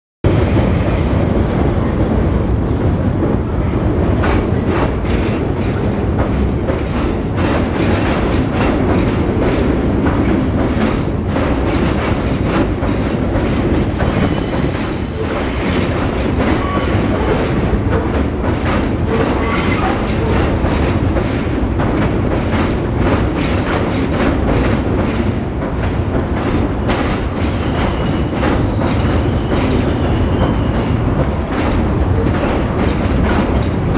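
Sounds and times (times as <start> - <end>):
train rumbling on steel structure: 0.2 - 33.9
train wheel squeal: 1.0 - 2.1, 10.9 - 12.0, 14.0 - 17.6, 19.1 - 20.6, 26.8 - 31.0
wheels clacking over rail joints: 3.2 - 33.9.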